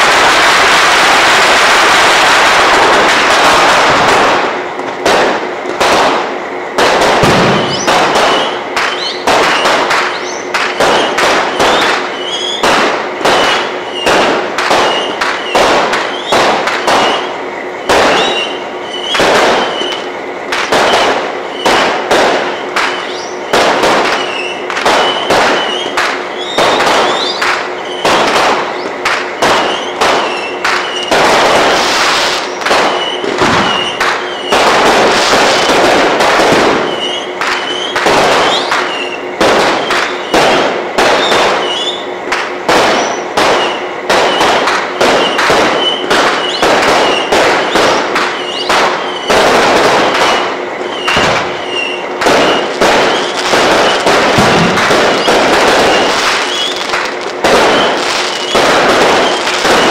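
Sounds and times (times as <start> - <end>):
fireworks bangs: 0.0 - 59.9
fireworks crackling: 0.0 - 59.9.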